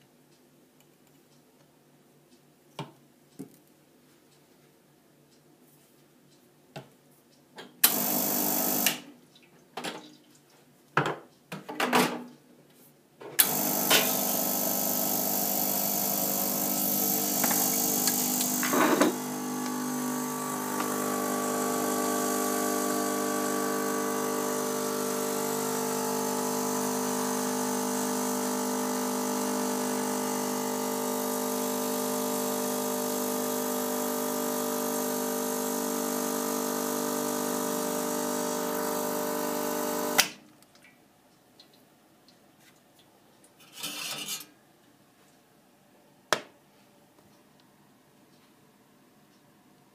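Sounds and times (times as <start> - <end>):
espresso machine pump running: 7.8 - 9.0, 13.4 - 40.3.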